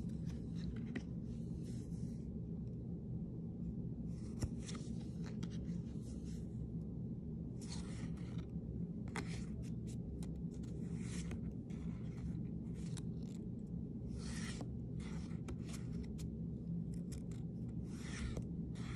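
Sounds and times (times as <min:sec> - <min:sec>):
steady low hum: 0:00.0 - 0:18.9.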